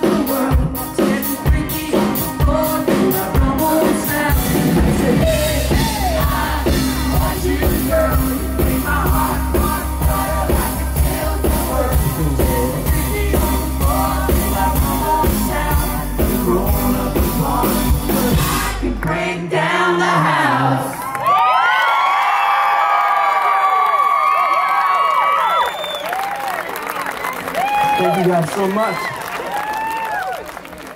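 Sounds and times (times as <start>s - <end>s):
steady drum beat: 0.0s - 19.0s
bass: 0.0s - 20.3s
person singing: 0.0s - 21.0s.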